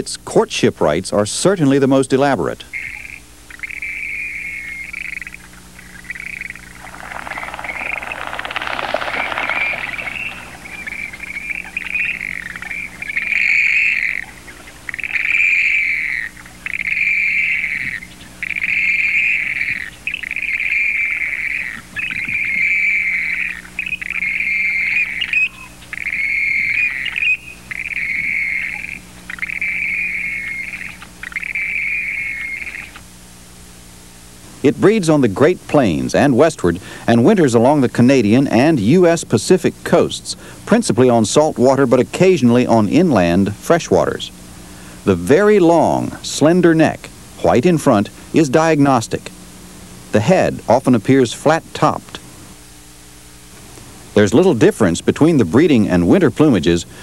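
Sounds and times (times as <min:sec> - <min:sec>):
grebes calling: 0:01.1 - 0:33.4, 0:34.6 - 0:53.4, 0:54.2 - 0:57.0
hissing noise: 0:05.8 - 0:13.2.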